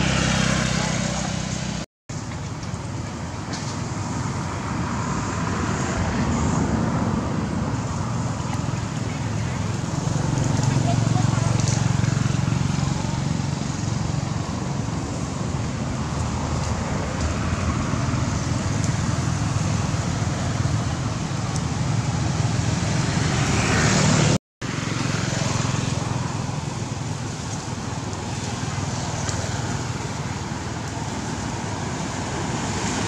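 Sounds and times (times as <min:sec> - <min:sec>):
outdoor background rumble: 0:00.0 - 0:33.0.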